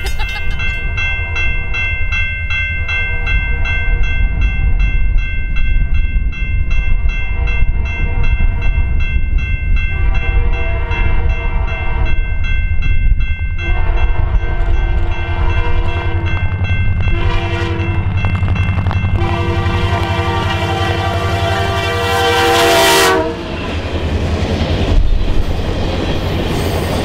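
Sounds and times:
crossing warning bell ringing: 0.0 - 27.0
locomotive horn: 9.9 - 11.8, 13.6 - 18.2, 18.8 - 23.8.

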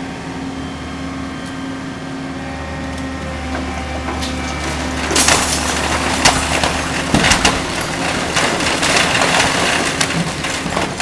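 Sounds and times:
excavator diesel engine hum: 0.0 - 11.0
wood cracking and crunching: 3.5 - 11.0.

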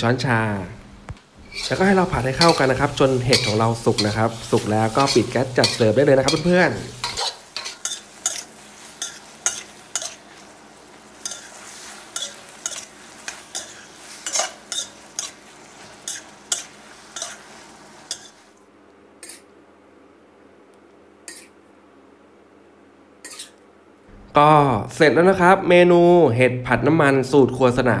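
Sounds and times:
food sizzling: 1.3 - 18.6
spatula scraping a wok: 1.4 - 18.5, 19.2 - 19.5, 21.3 - 21.5, 23.2 - 23.6.

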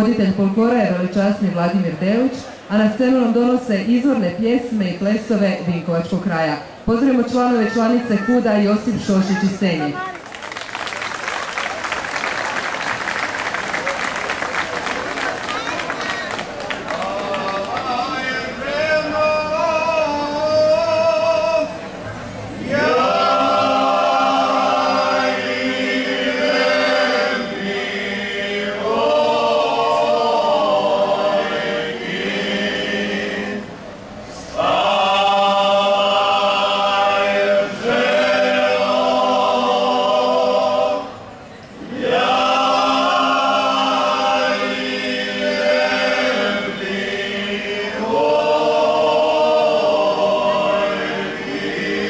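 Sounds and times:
men singing unaccompanied: 16.9 - 21.8, 22.6 - 33.8, 34.5 - 52.0.

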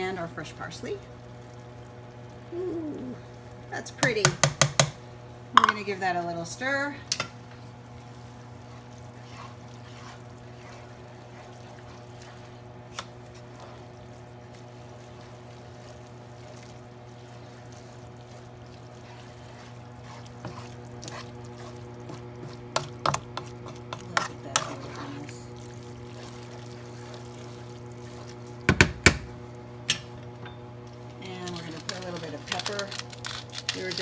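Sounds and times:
steady low hum: 0.0 - 34.0
spoon stirring spaghetti in skillet: 5.6 - 29.5
spoon clacking and scraping pan: 19.0 - 25.3.

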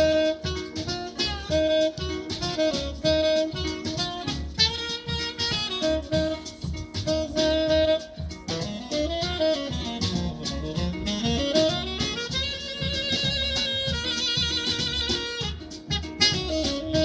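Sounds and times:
plucked double bass: 0.0 - 17.0
tenor saxophone melody: 0.0 - 17.0.

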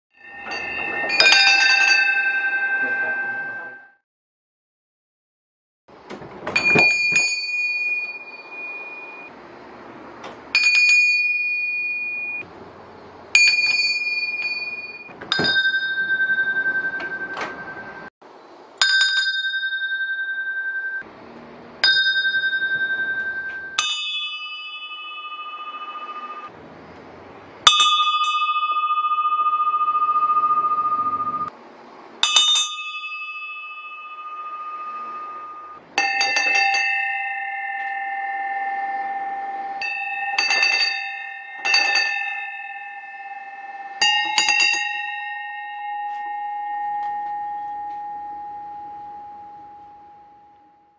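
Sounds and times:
brass bells ringing: 0.1 - 4.0, 21.8 - 26.5, 27.7 - 31.5, 32.2 - 50.9.

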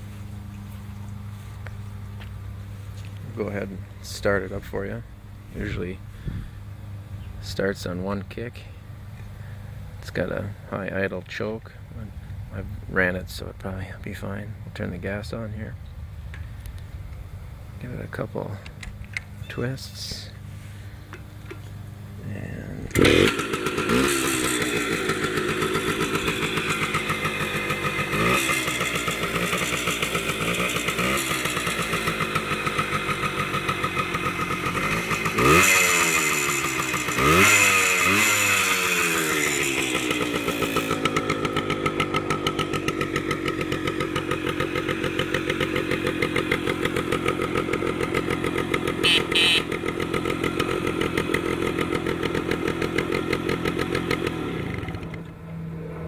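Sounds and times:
two-stroke engine revving: 22.8 - 55.8.

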